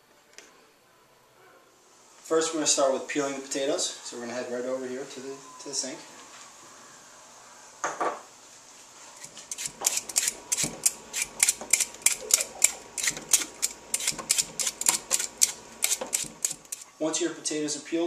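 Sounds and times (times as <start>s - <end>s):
blade scraping potato skin: 9.2s - 16.9s.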